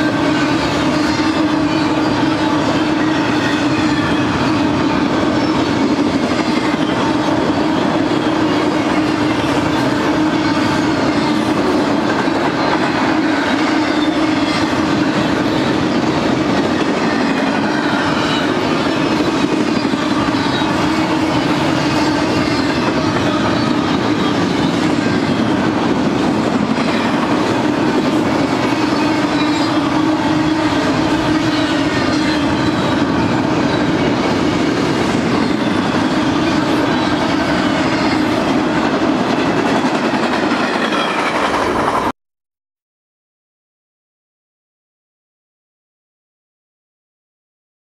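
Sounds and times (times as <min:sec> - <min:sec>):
train wheels clattering on rails: 0:00.0 - 0:42.1.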